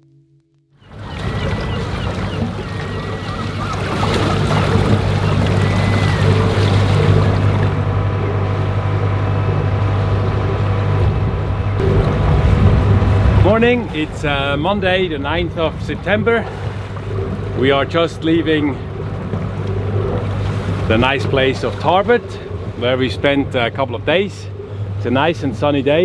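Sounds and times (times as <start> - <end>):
boat engine running: 0.8 - 26.0
water noise: 0.8 - 26.0
wind noise: 9.3 - 17.6.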